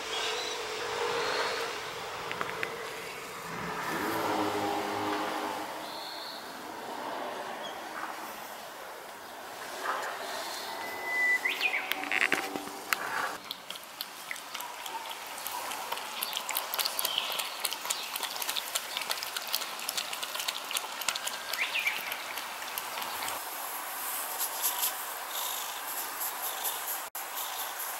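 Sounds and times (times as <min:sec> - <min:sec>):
cats lapping milk: 0:13.4 - 0:23.5.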